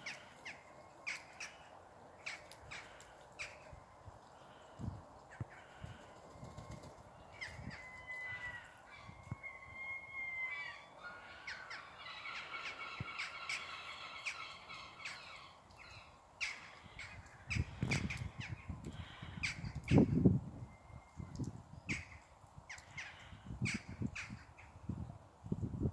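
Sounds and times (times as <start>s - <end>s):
bird calls: 0.0s - 3.8s, 7.2s - 21.3s.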